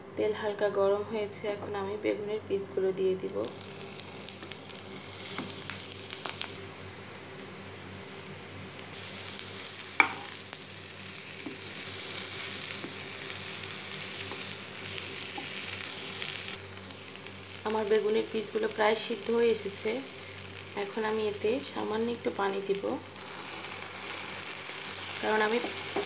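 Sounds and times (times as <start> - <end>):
food sizzling in frying pan: 3.2 - 26.0
metal spoon clinking on pan: 10.0 - 10.3.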